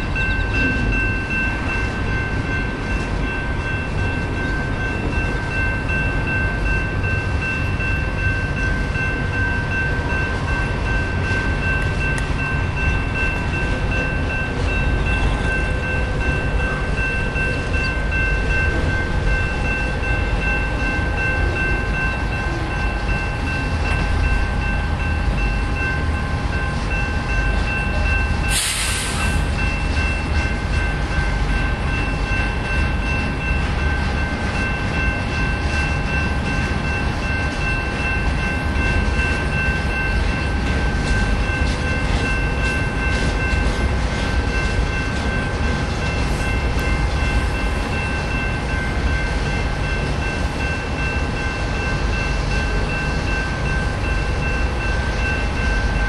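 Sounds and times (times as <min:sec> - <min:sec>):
train wheels rumbling on rails: 0:00.0 - 0:56.0
brief hiss: 0:28.5 - 0:29.5.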